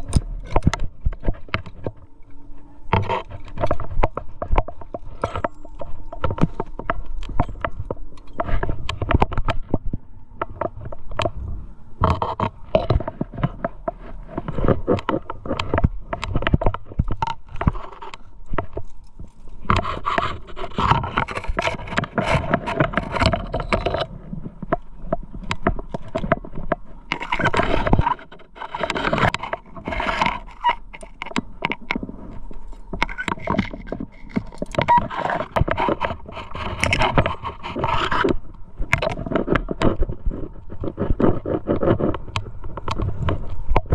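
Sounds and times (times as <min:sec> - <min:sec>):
climbing gear scraping on rock: 0:25.6 - 0:43.9.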